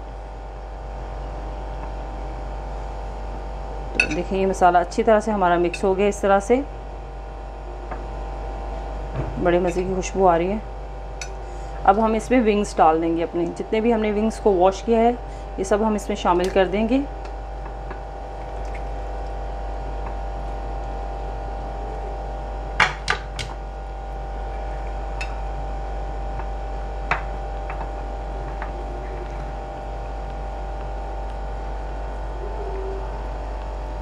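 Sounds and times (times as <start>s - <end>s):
electrical hum: 0.0s - 34.0s.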